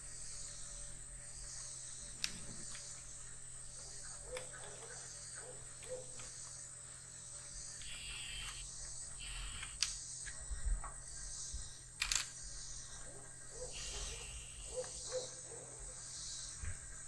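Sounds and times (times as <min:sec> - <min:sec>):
crickets trilling: 0:00.0 - 0:17.0
sharp clicks: 0:09.2 - 0:10.0.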